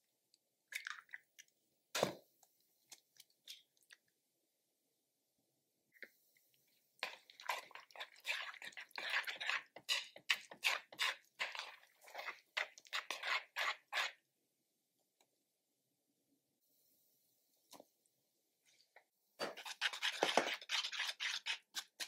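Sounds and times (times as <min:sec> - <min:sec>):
chopsticks whisking eggs: 0:07.0 - 0:14.2, 0:19.4 - 0:22.0.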